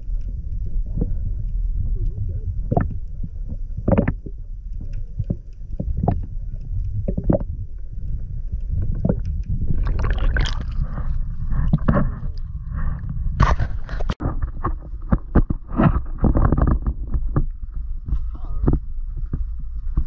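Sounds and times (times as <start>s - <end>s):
underwater rumble of moving water: 0.0s - 20.0s
water splashing: 9.0s - 12.3s.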